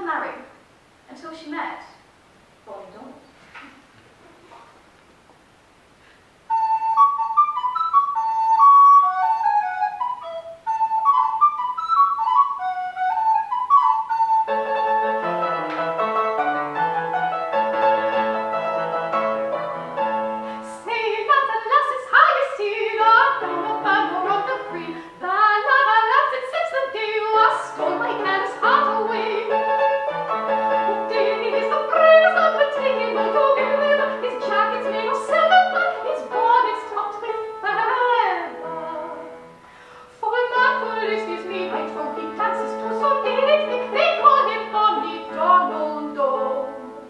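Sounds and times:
fortepiano playing: 0:06.7 - 0:39.6, 0:40.2 - 0:47.0
woman singing: 0:20.6 - 0:39.4, 0:40.1 - 0:47.0.

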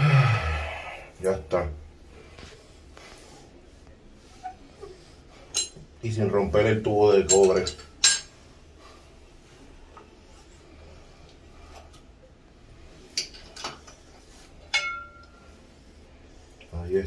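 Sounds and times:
metal tools clinking on tiles: 0:05.5 - 0:05.8, 0:07.2 - 0:08.4.

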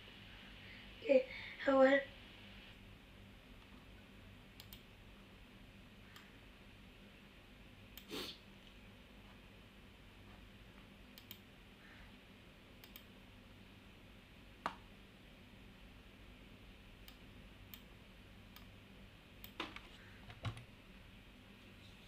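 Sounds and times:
faint low hum: 0:00.0 - 0:22.0
computer mouse clicking: 0:04.6 - 0:04.9, 0:11.1 - 0:11.4, 0:12.8 - 0:13.1, 0:17.0 - 0:17.9, 0:18.5 - 0:18.7, 0:19.4 - 0:20.7.

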